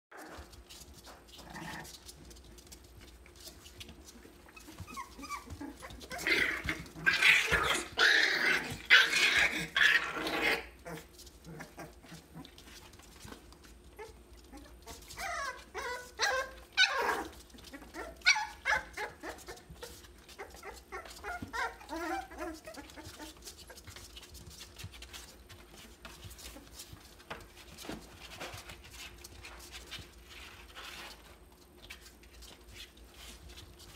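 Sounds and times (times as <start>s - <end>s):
puppies yelping and whining: 3.8s - 24.0s.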